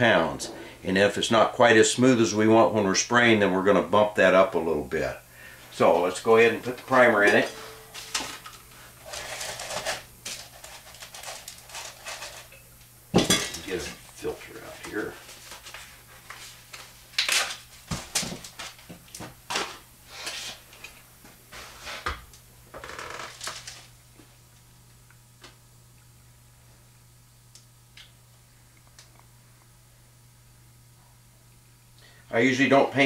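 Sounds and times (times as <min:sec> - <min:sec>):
paper crinkling: 0:08.0 - 0:12.5.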